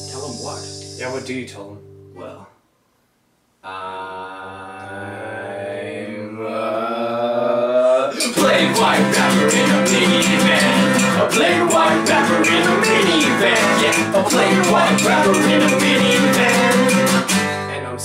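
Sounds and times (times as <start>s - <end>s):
strummed acoustic guitar: 8.1s - 18.0s.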